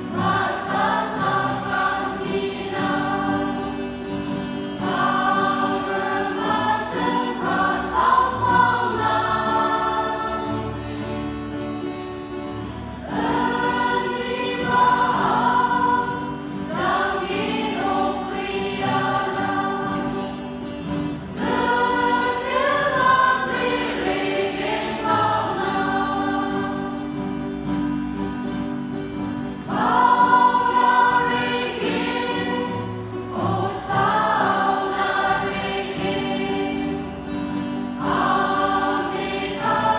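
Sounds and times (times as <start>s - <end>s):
mixed choir singing a hymn: 0.0s - 11.3s, 13.0s - 27.6s, 29.5s - 39.9s.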